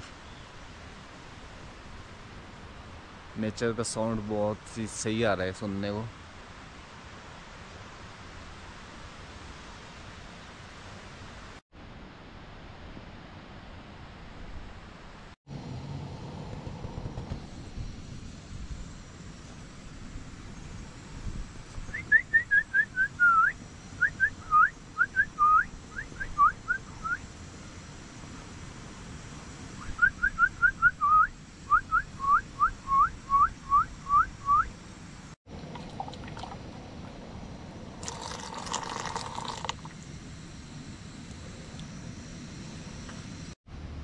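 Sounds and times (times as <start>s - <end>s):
bird singing whistled notes: 21.8s - 27.2s, 29.8s - 34.7s.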